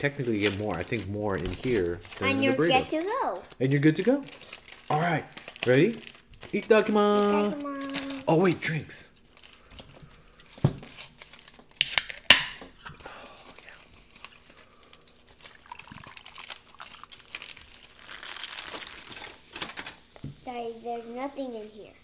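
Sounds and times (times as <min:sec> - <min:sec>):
aluminium foil crinkling: 0:00.0 - 0:12.3, 0:13.0 - 0:20.1
drink pouring into glass mug: 0:15.5 - 0:19.2.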